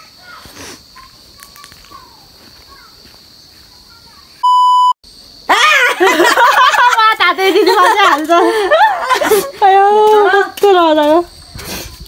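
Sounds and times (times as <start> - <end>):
loud electronic beep: 4.4 - 5.0
woman laughing while speaking: 5.5 - 10.5.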